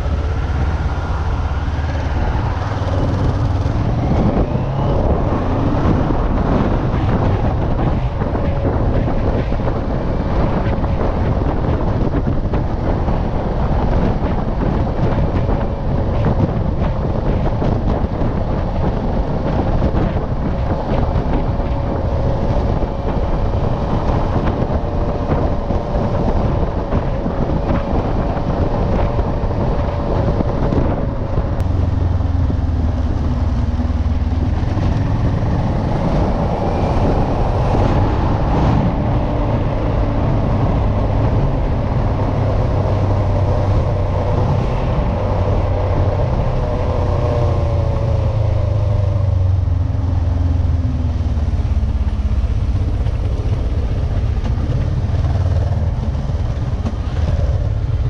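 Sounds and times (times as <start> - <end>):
motorcycle engine pulling away: 0.0 - 7.5
wind noise on microphone: 0.0 - 58.0.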